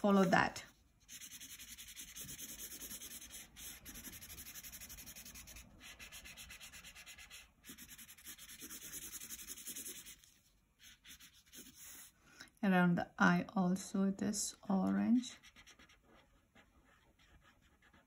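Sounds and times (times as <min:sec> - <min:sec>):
marker scribbling on paper: 0:01.1 - 0:12.1, 0:15.3 - 0:18.0.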